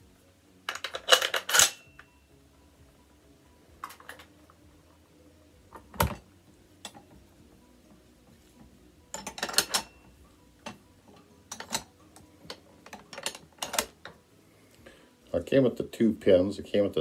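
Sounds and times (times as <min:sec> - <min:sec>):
metal clicks and clinks: 0:00.7 - 0:02.1, 0:09.1 - 0:10.8, 0:11.5 - 0:11.9, 0:12.5 - 0:14.2.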